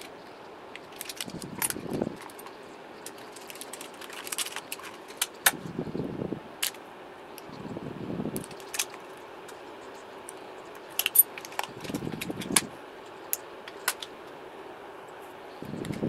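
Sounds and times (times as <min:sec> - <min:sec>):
plastic wrap rustling: 0:00.8 - 0:05.5
metallic clicks of battery cells: 0:08.4 - 0:14.2.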